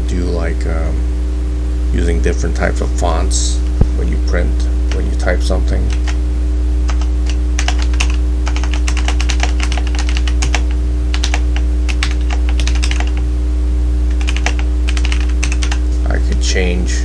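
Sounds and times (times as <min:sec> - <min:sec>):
low electrical hum: 0:00.0 - 0:17.0
typing on computer keyboard: 0:05.9 - 0:06.2, 0:06.9 - 0:13.2, 0:14.1 - 0:15.8.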